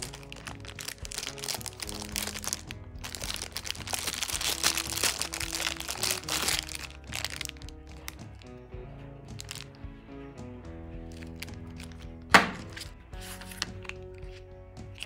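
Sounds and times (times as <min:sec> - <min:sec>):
plastic bag crinkling: 0:00.0 - 0:08.5, 0:09.4 - 0:09.7, 0:11.1 - 0:14.0
background music: 0:00.0 - 0:15.0.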